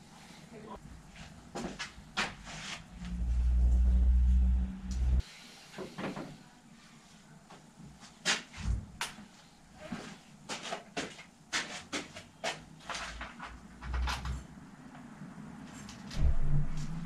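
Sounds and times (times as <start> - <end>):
low hum: 2.8 - 5.2, 16.2 - 17.0.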